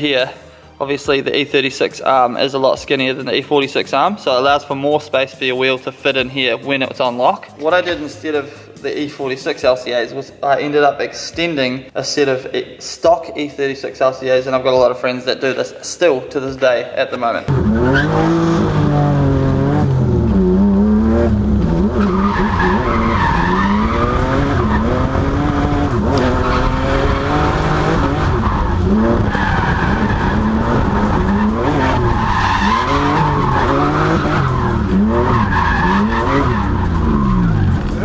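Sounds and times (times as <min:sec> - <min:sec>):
car engine revving: 0:17.5 - 0:38.0
tyres squealing: 0:17.5 - 0:38.0.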